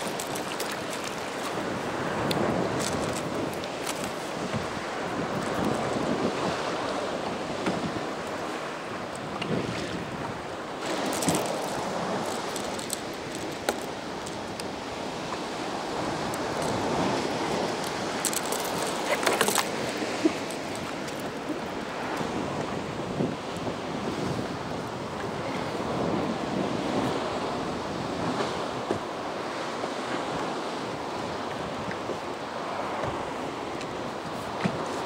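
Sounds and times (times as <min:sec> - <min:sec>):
fishing tackle clicks and rattles: 0:00.0 - 0:01.6, 0:02.7 - 0:04.1, 0:10.9 - 0:14.7, 0:16.1 - 0:21.5
water lapping and splashing: 0:00.0 - 0:35.0
wind on microphone: 0:00.0 - 0:35.0.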